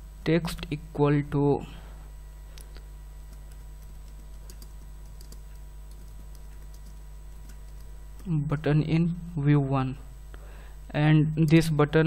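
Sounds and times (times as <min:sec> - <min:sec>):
keyboard typing: 0:03.3 - 0:08.3.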